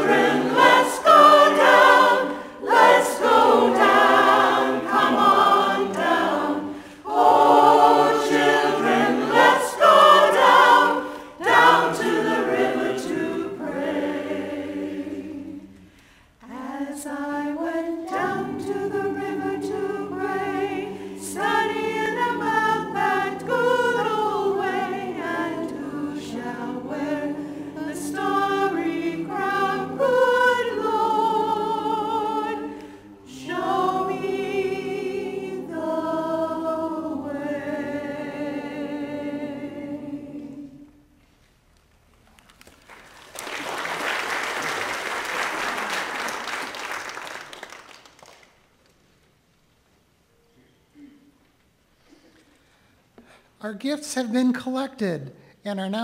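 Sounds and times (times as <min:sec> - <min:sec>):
church choir singing a hymn: 0:00.0 - 0:41.0.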